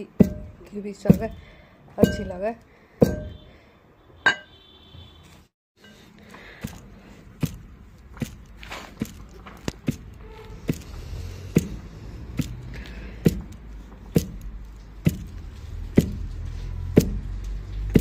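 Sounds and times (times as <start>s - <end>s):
pestle thudding in metal bowl: 0.1s - 1.4s, 2.0s - 3.5s, 13.2s - 16.3s.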